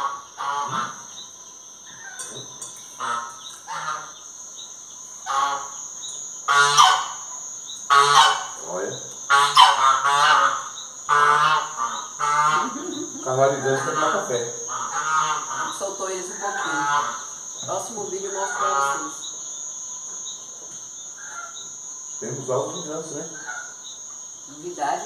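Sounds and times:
geese honking: 0:00.0 - 0:01.1, 0:03.0 - 0:04.2, 0:05.2 - 0:05.9, 0:06.5 - 0:17.4, 0:18.0 - 0:19.3, 0:23.1 - 0:23.9.

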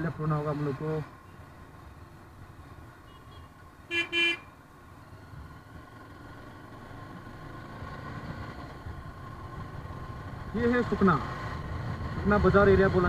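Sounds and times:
motorbike engine and road noise: 0:00.0 - 0:13.0
vehicle horn beeps: 0:03.1 - 0:04.4.

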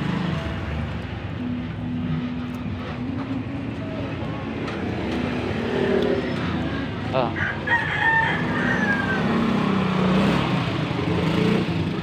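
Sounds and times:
rooster crowing: 0:07.3 - 0:09.7.

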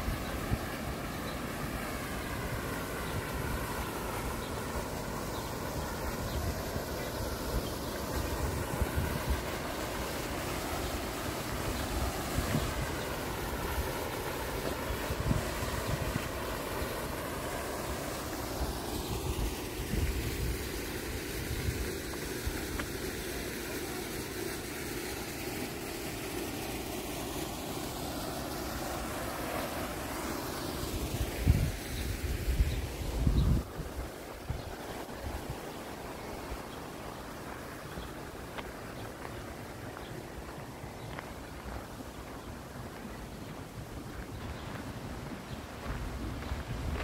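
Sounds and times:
fountain splashing into pool: 0:00.0 - 0:47.0
wind buffeting microphone: 0:06.0 - 0:10.0, 0:10.6 - 0:17.6, 0:18.6 - 0:22.8, 0:31.0 - 0:35.7, 0:42.3 - 0:47.0.

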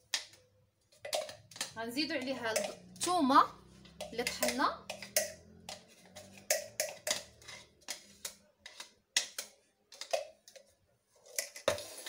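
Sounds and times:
container tapping and knocking: 0:01.0 - 0:03.1, 0:03.8 - 0:10.6.

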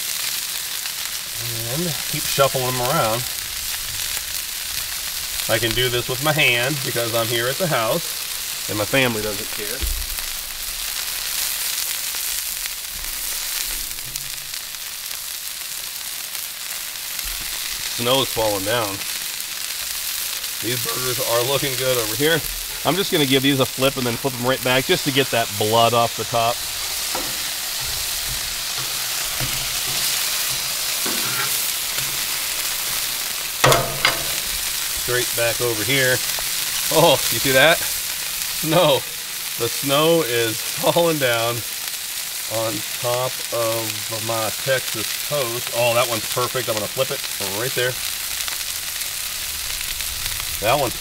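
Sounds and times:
food sizzling on griddle: 0:00.0 - 0:51.0
clatter on griddle: 0:23.8 - 0:38.3.

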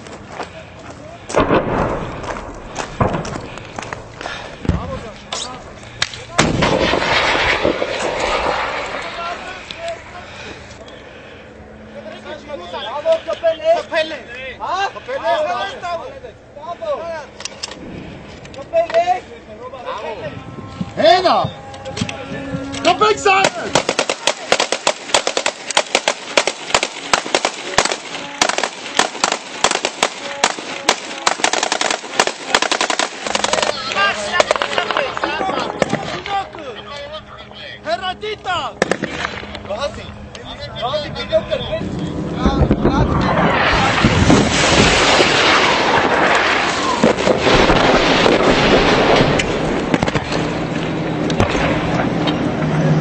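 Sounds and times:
assault rifles firing: 0:06.4 - 0:09.0, 0:23.4 - 0:36.2, 0:38.8 - 0:39.5
rapid small-arms gunfire: 0:23.4 - 0:33.9.

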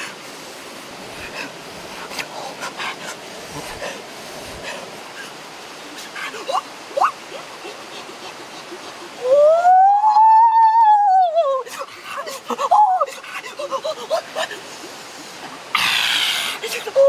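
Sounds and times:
steady background hiss: 0:00.0 - 0:17.0
boy exclaiming ooh: 0:09.2 - 0:11.7.

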